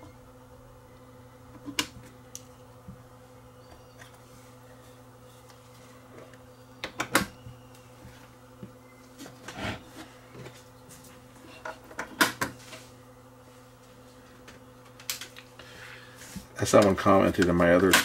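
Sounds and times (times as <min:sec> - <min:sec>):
steady low hum: 0:00.0 - 0:18.0
tape deck knobs clicking: 0:06.3 - 0:07.4.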